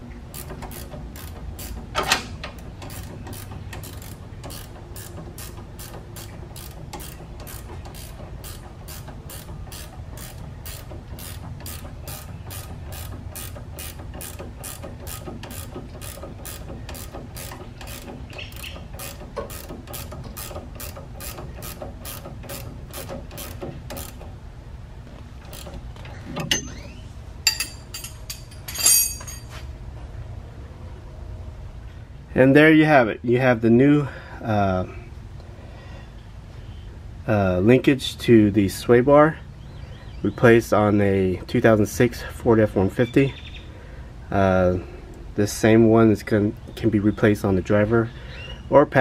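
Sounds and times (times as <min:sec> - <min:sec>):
hand ratchet clicking: 0:00.3 - 0:24.4, 0:25.4 - 0:26.7.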